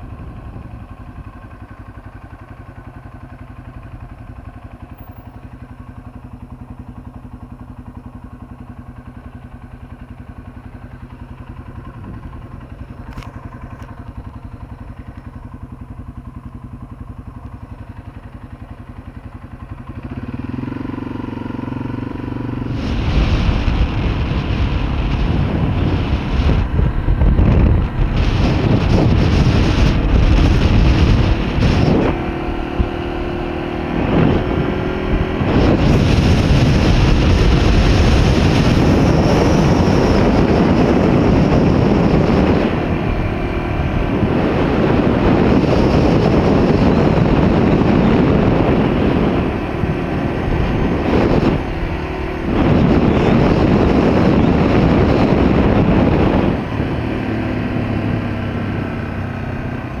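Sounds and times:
low engine hum: 0.0 - 60.0
wind rushing over microphone: 19.8 - 60.0.

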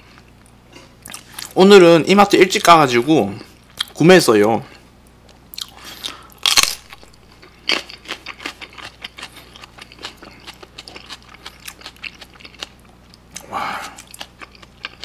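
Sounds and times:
crisp chewing crunches: 5.5 - 15.0
person biting chili pepper crunch: 5.5 - 15.0.

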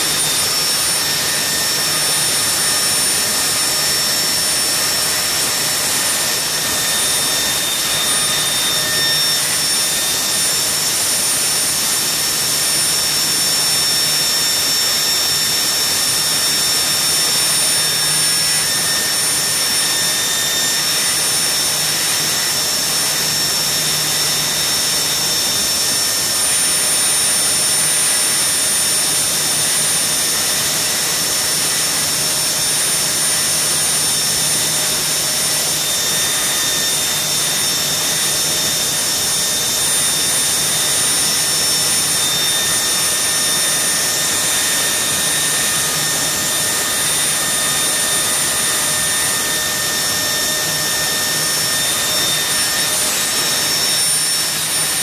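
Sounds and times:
gas turbine engine running: 0.0 - 55.0
high-pitched turbine whine: 0.0 - 55.0.

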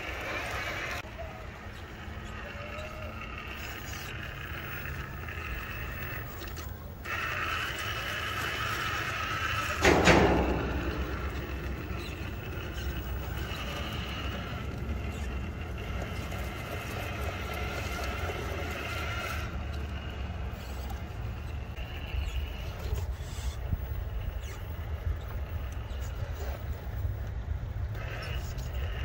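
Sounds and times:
steady low rumble: 9.4 - 20.6
loud thump: 9.8 - 14.3.

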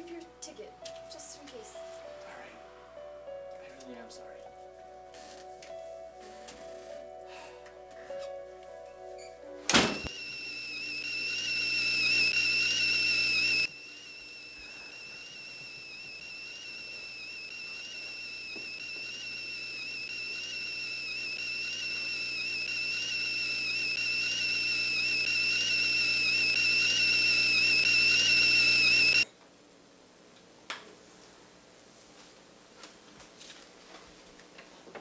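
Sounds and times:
kettle whistling: 10.0 - 29.3.

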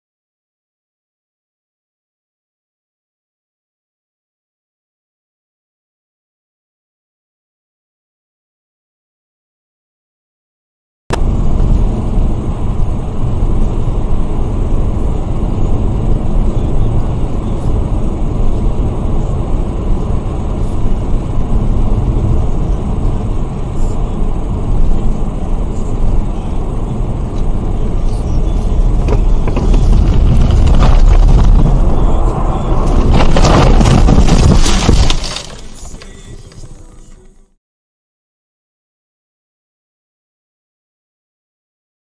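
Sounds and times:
car tyres and engine rumble: 11.1 - 37.5.

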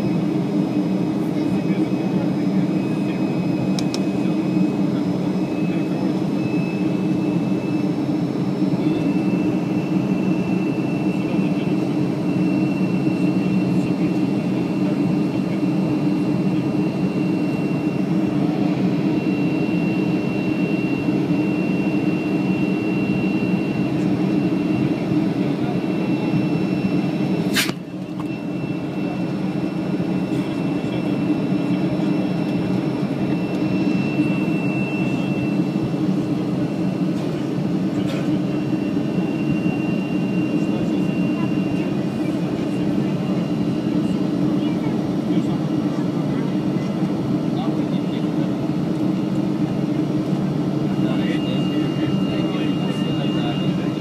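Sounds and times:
high fan whine: 0.0 - 54.0
jet engine rumble in cabin: 0.0 - 54.0
sharp click: 27.5 - 27.8.

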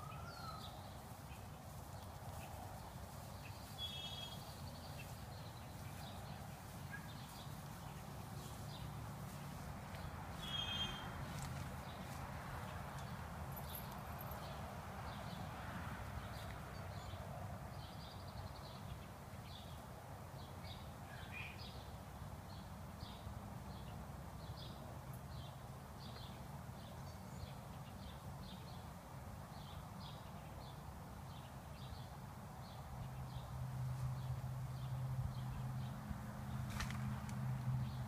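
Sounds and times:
bird chirping: 3.3 - 8.9, 10.0 - 11.1.

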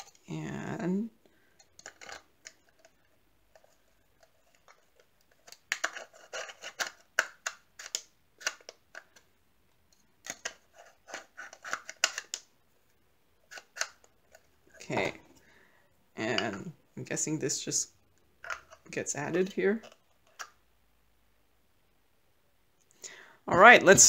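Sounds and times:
plastic parts clicking and snapping: 1.6 - 12.5.

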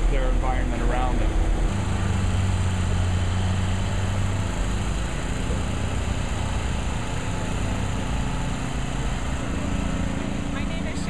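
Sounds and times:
machinery engine running: 0.0 - 11.0.

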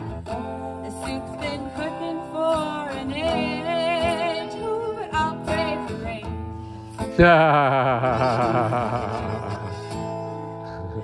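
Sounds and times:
acoustic guitar strumming: 0.0 - 11.0
woman singing: 0.3 - 6.4.

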